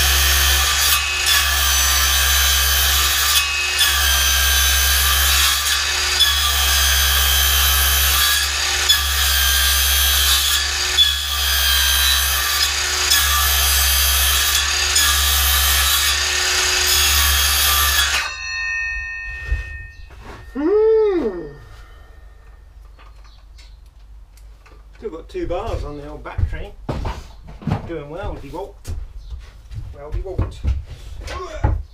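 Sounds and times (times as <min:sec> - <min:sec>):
circular saw cutting wood: 0:00.0 - 0:18.4
saw blade winding down: 0:00.0 - 0:18.4.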